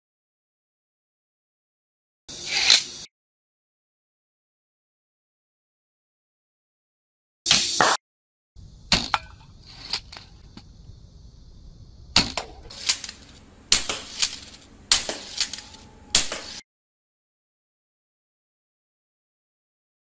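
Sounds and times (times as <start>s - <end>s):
low steady background: 8.6s - 16.6s
bow shooting sharp cracks: 8.9s - 10.5s, 12.2s - 16.6s.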